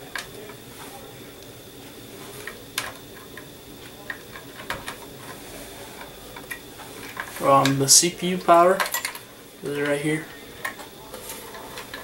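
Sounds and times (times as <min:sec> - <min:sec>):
faint hiss: 0:00.0 - 0:12.0
plastic connectors clicking and rustling: 0:02.3 - 0:05.4, 0:06.0 - 0:10.0, 0:10.6 - 0:12.0.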